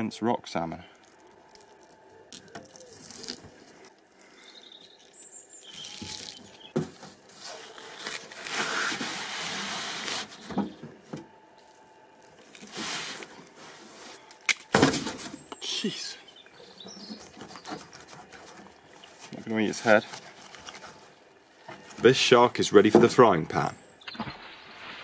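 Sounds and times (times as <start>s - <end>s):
wet skin tearing: 1.0s - 6.7s, 11.7s - 13.6s.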